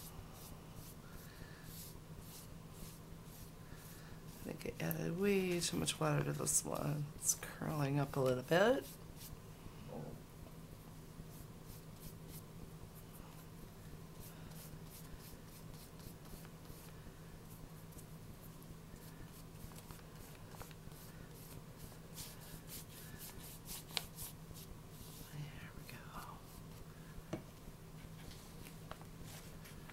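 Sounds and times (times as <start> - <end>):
paintbrush strokes on paper: 0.0 - 6.5, 8.2 - 9.4, 11.3 - 13.6, 14.2 - 26.8, 28.0 - 29.9.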